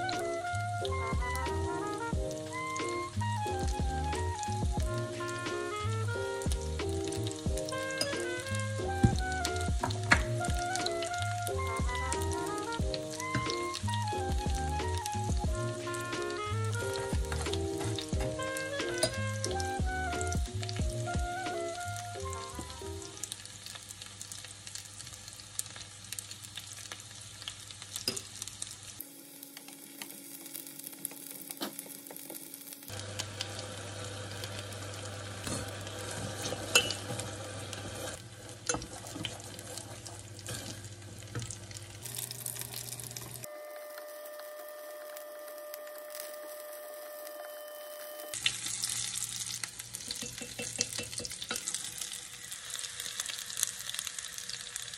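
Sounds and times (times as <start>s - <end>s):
sauce bubbling in a pot: 0.0s - 46.8s, 48.3s - 54.9s
utensils clicking against pot: 17.3s - 19.6s, 36.4s - 37.3s, 50.0s - 51.8s.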